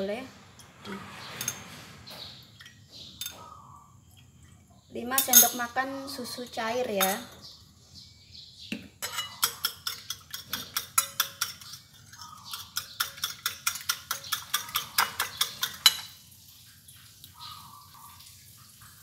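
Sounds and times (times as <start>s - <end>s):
whisk clicking against bowl: 9.4s - 11.9s, 12.5s - 16.0s.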